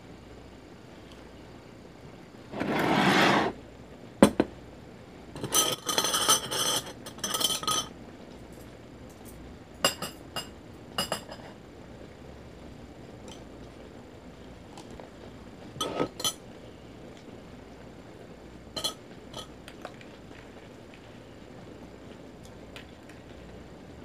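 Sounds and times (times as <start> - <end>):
utensils clinking against a bowl: 5.4 - 7.9, 9.9 - 11.6, 15.8 - 16.4, 18.8 - 19.6.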